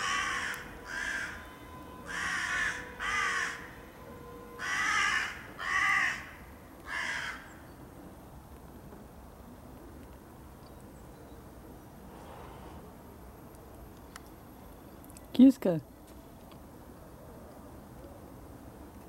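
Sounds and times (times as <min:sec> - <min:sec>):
crows cawing: 0:00.0 - 0:03.8, 0:04.6 - 0:07.6.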